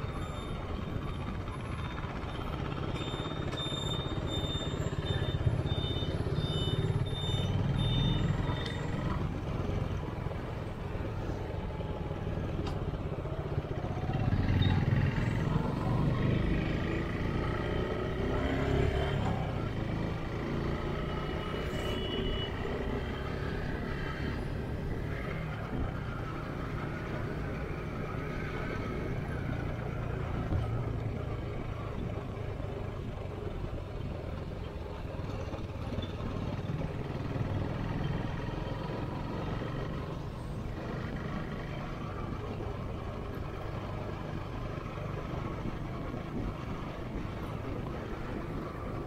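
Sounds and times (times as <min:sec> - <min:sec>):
motorcycle engine and road noise: 0:00.0 - 0:49.0.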